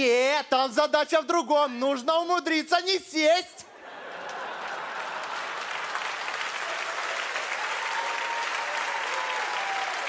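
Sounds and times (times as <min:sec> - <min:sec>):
audience applauding: 0:04.0 - 0:10.0.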